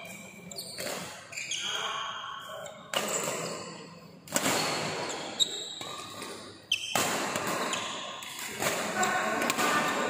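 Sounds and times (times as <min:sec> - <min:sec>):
shoes squeaking on court: 0:00.0 - 0:03.7, 0:04.4 - 0:09.4
racket striking shuttlecock: 0:05.8 - 0:10.0.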